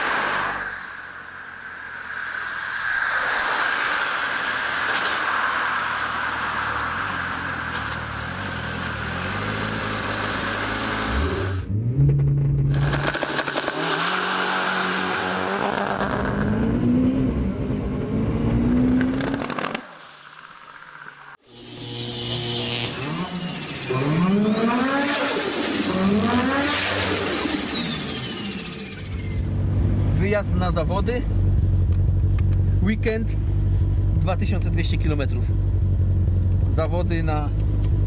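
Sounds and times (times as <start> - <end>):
engine rushing noise: 0.0 - 21.4
turbo engine revving: 7.2 - 19.7, 22.4 - 30.2.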